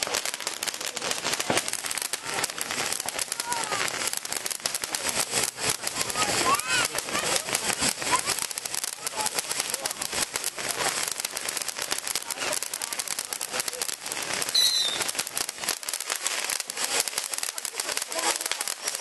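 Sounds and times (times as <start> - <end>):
fireworks hissing and crackling: 0.0 - 19.0
high squeal of fireworks: 0.0 - 19.0.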